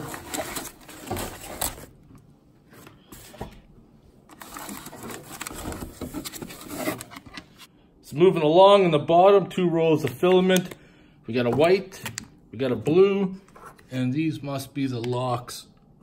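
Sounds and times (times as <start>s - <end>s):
plastic bags crinkling: 0.0s - 2.0s.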